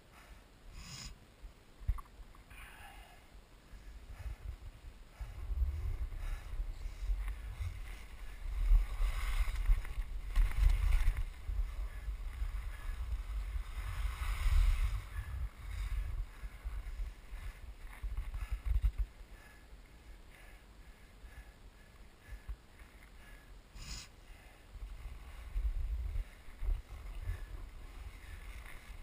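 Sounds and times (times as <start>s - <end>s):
wind buffeting microphone: 3.8s - 19.2s, 24.8s - 29.0s
skis scraping on snow: 7.1s - 18.2s.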